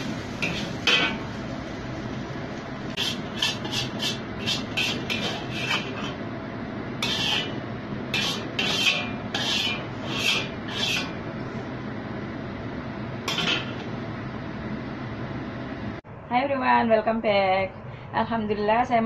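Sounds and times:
metal spatula scraping a wok: 0:00.4 - 0:01.3, 0:02.9 - 0:06.2, 0:07.0 - 0:11.2, 0:13.3 - 0:13.9.

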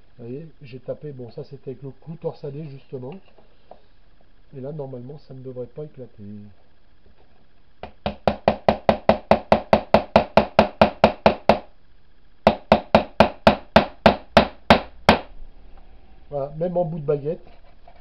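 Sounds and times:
hammer tapping a nail: 0:07.8 - 0:11.7, 0:12.5 - 0:15.3.

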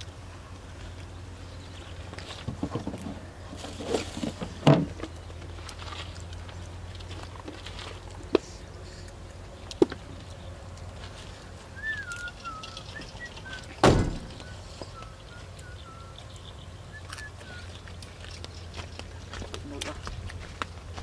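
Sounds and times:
steady low hum: 0:00.0 - 0:21.0
bird whistling: 0:11.8 - 0:17.8
dull thump: 0:13.8 - 0:14.4.

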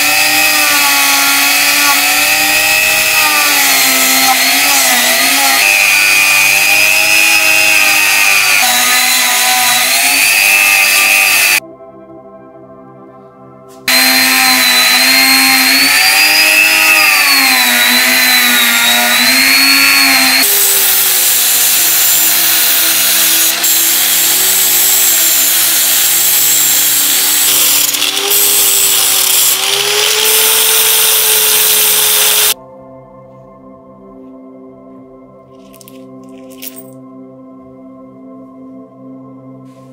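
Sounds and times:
power tool grinding metal: 0:00.0 - 0:11.6, 0:13.9 - 0:32.6
background music: 0:00.0 - 0:24.8, 0:32.6 - 0:39.9.

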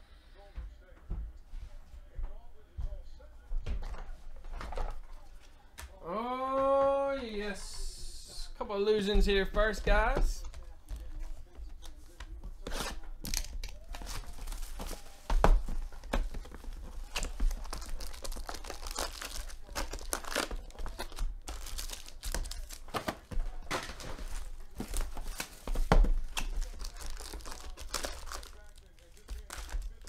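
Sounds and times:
foil packs crinkling and tearing: 0:12.6 - 0:30.0.

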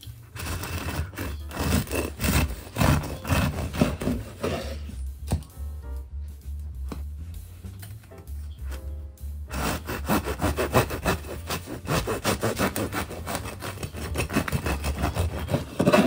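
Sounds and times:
knife sawing through bread: 0:00.1 - 0:05.0, 0:09.5 - 0:16.0.

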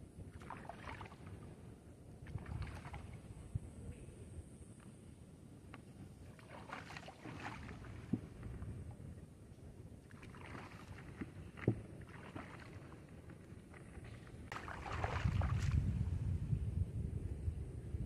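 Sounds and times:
wind rumble on microphone: 0:00.0 - 0:18.0
water splashing and sloshing: 0:00.2 - 0:03.5, 0:06.1 - 0:16.3.

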